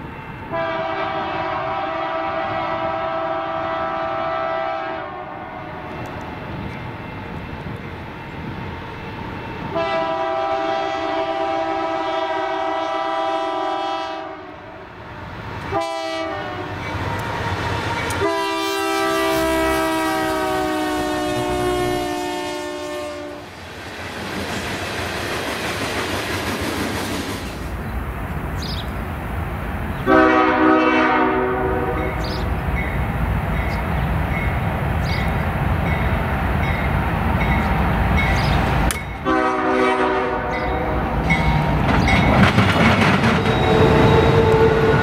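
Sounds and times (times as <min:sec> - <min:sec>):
locomotive air horn: 0:00.5 - 0:06.1, 0:09.7 - 0:14.8, 0:15.7 - 0:16.8, 0:18.0 - 0:23.5, 0:30.0 - 0:32.3, 0:39.2 - 0:41.2, 0:43.7 - 0:45.0
freight cars rumbling: 0:31.8 - 0:39.3, 0:40.2 - 0:45.0.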